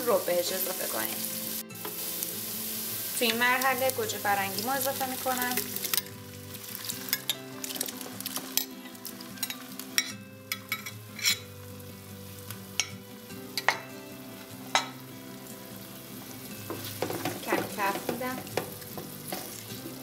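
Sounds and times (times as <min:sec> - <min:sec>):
tomatoes sizzling in oil: 0:00.0 - 0:20.0
wooden spatula tapping pot: 0:16.7 - 0:19.5.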